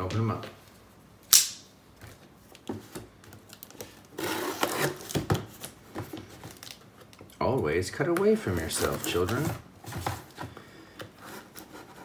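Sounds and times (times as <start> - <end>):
knife cutting cardboard: 4.1 - 5.3.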